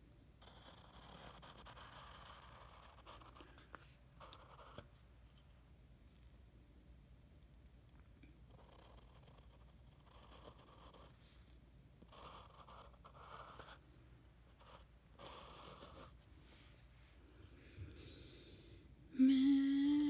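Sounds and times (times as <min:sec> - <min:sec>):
pencil scratching on paper: 0:00.4 - 0:03.6, 0:04.2 - 0:04.9, 0:08.5 - 0:13.8, 0:14.5 - 0:16.2.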